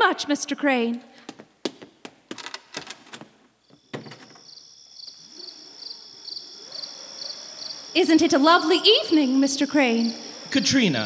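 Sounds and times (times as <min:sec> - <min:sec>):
crickets chirping: 0:03.2 - 0:11.0.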